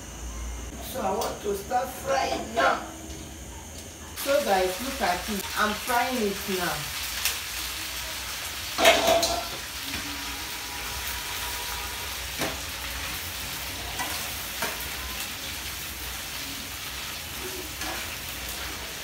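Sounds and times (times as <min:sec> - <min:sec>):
food sizzling in oil: 0:04.2 - 0:19.0.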